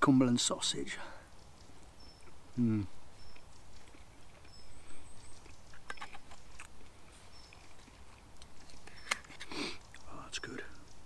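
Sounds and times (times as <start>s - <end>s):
man chewing food: 1.4s - 10.0s.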